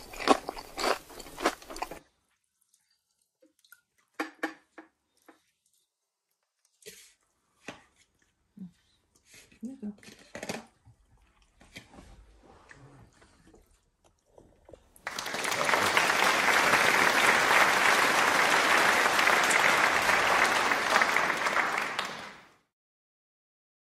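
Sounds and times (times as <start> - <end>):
loud applause: 15.0 - 22.7.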